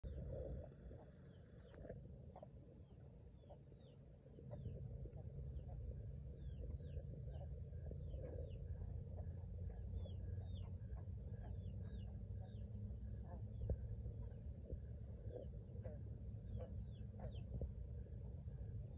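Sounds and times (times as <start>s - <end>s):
frogs chirping: 0.0s - 18.9s
low rumble: 4.2s - 18.9s.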